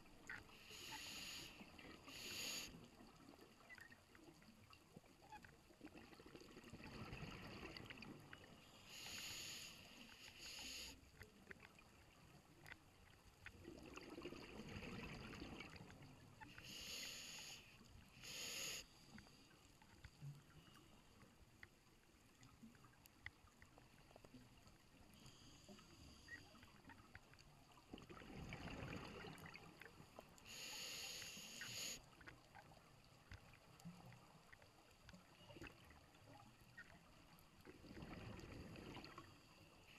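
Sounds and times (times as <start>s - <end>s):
diver breathing through regulator: 0.6s - 2.8s, 8.8s - 11.0s, 16.6s - 19.2s, 30.4s - 32.0s.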